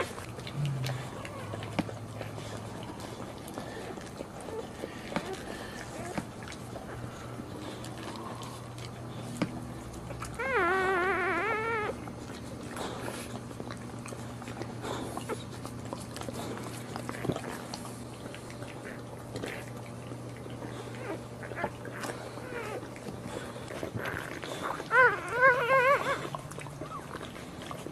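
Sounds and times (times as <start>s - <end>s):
puppy crying: 0.0s - 6.2s, 10.1s - 12.2s, 20.6s - 23.1s, 23.7s - 27.4s
dog licking and mouthing: 0.0s - 27.9s
steady low hum: 0.0s - 27.9s.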